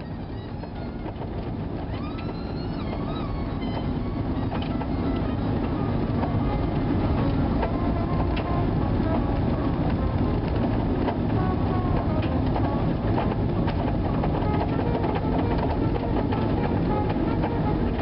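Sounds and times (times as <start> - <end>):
vehicle road noise: 0.0 - 18.0
small clicks and rattles: 9.8 - 18.0.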